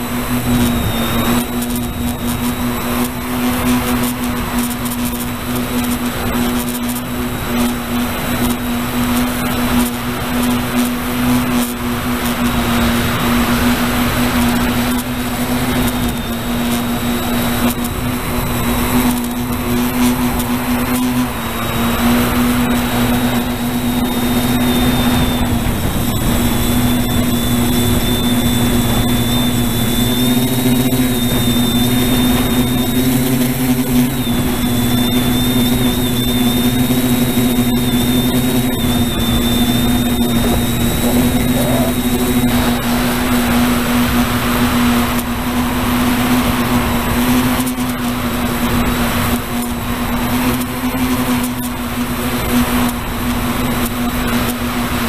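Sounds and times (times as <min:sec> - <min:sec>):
drone motors humming with whine: 0:00.0 - 0:55.0.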